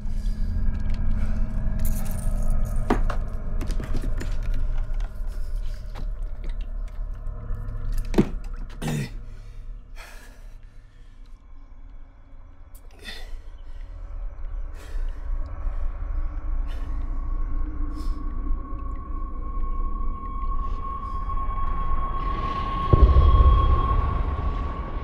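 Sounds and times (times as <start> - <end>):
low rumble: 0.0 - 25.0.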